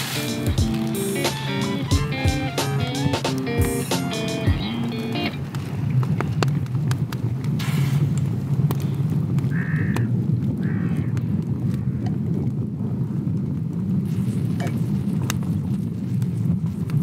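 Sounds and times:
wind rumble on microphone: 5.0s - 17.0s
harsh animal calls: 9.5s - 11.2s.

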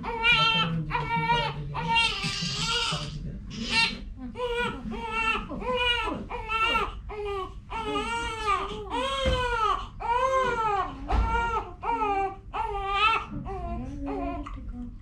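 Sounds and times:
newborn baby crying: 0.0s - 14.4s.

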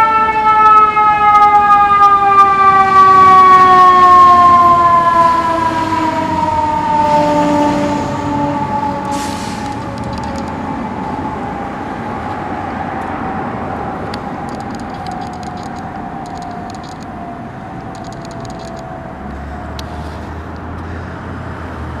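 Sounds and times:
fire engine siren: 0.0s - 20.6s
road traffic: 0.0s - 22.0s
light clicks: 9.0s - 10.6s, 14.0s - 17.1s, 17.8s - 18.9s.

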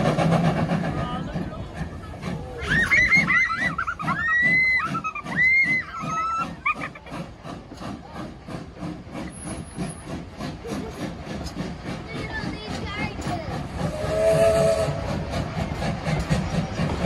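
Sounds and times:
steam train rhythmic chuffing: 0.0s - 17.0s.

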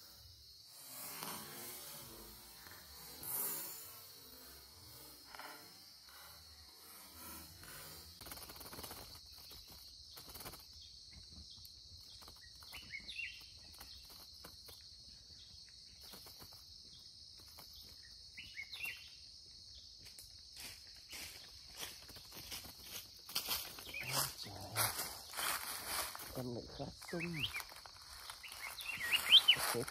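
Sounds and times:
high insect drone: 0.0s - 29.9s
wings flapping against wire cage: 7.7s - 10.7s
short bird calls: 27.0s - 29.9s.

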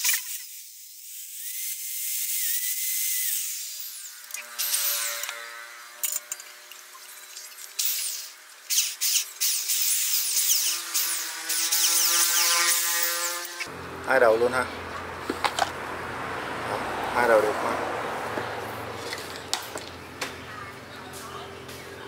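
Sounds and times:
electric drill whining: 0.0s - 13.7s.

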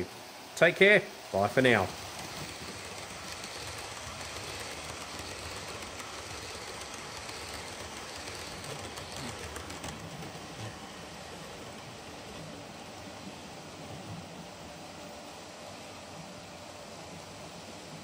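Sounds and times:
model train rolling on track: 0.8s - 13.7s.

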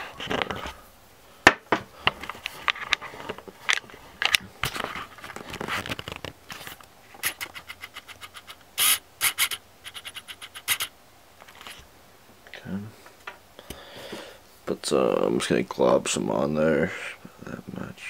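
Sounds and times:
objects scraping and clicking: 2.1s - 8.7s, 9.4s - 11.8s.

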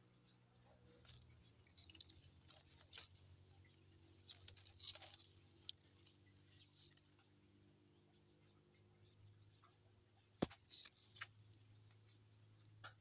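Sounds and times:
leaves and twigs rustling: 0.9s - 7.5s, 10.4s - 12.7s.

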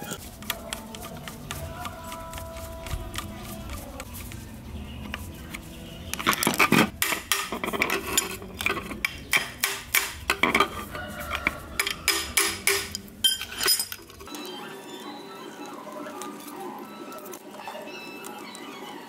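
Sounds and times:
metal tool scraping metal housing: 6.2s - 14.3s.

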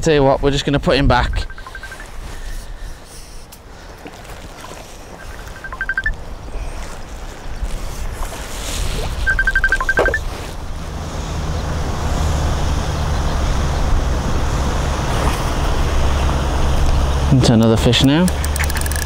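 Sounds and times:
rapid ticks: 1.4s - 2.1s, 17.6s - 19.0s.

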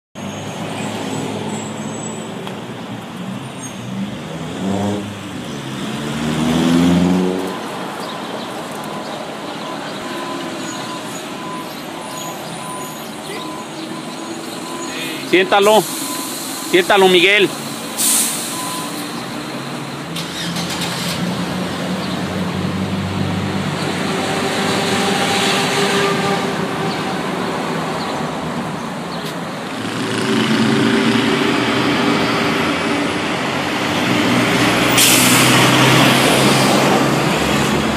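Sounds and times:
road noise: 0.1s - 37.9s
vehicle engines running: 0.2s - 37.9s
engine revving up: 4.2s - 7.6s, 20.1s - 25.9s, 29.7s - 37.9s.

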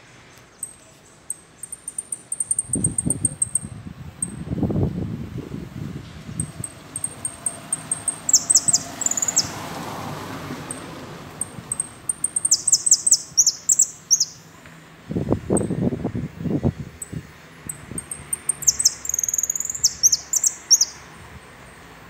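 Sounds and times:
finch singing high chirps: 0.6s - 4.4s, 6.4s - 9.6s, 10.7s - 14.4s, 17.0s - 21.0s.

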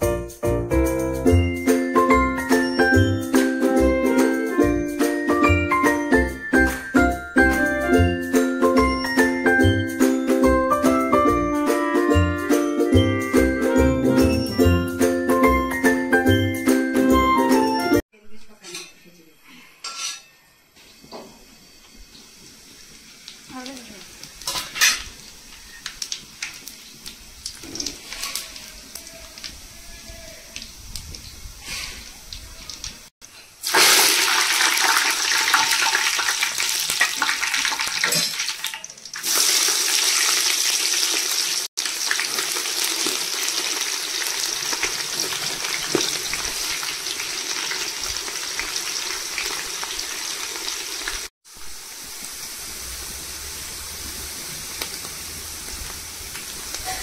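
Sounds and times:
onions sizzling in oil: 20.0s - 57.0s
spices crackling in hot oil: 21.8s - 57.0s.

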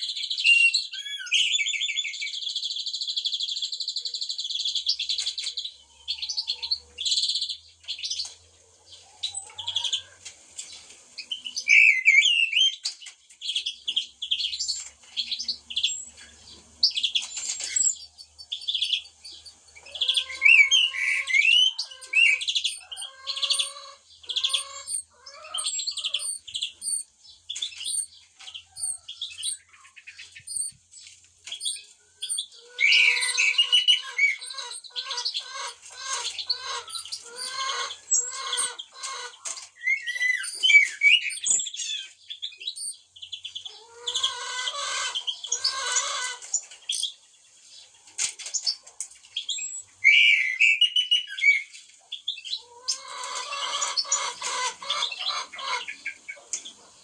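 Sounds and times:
songbirds chirping: 0.0s - 57.0s
lower repeated bird call: 11.2s - 12.9s, 19.8s - 27.0s, 31.6s - 43.0s, 49.5s - 51.7s.

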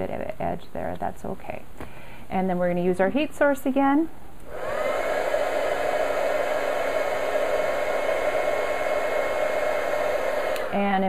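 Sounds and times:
heat tool fan humming: 4.4s - 11.0s.

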